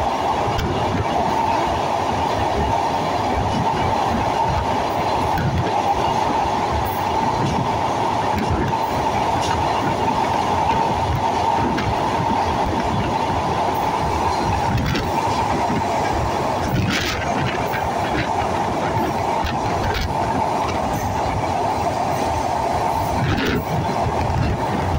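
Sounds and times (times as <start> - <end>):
train wheels rumbling on rail: 0.0 - 24.9
sharp clacks of wheels: 3.5 - 21.5, 23.0 - 24.9.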